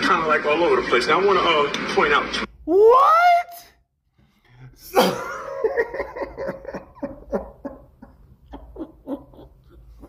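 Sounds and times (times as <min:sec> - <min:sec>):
man laughing hard: 0:05.0 - 0:10.0.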